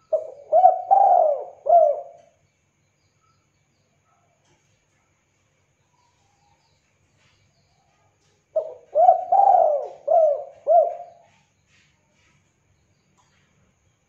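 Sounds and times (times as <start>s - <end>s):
dove cooing: 0.0s - 2.3s, 8.6s - 11.4s.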